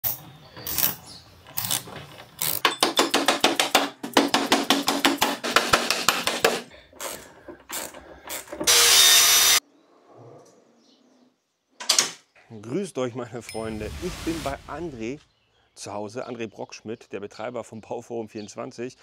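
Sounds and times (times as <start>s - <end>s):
ratchet wrench clicking: 1.6s - 1.8s.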